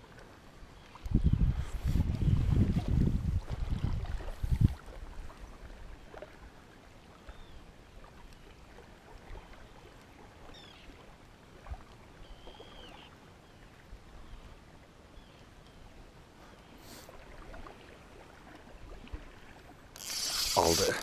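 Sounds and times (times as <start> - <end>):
water lapping at shore: 0.0 - 21.0
small ticks: 20.0 - 21.0.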